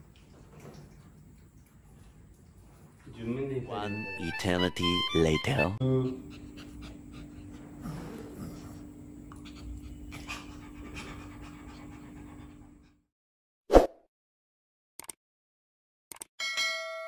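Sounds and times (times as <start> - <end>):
dog panting: 5.9 - 13.0.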